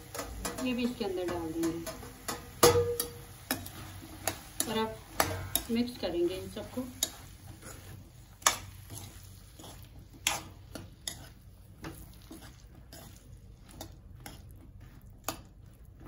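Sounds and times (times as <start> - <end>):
spatula knocking and scraping pan: 0.0 - 15.6.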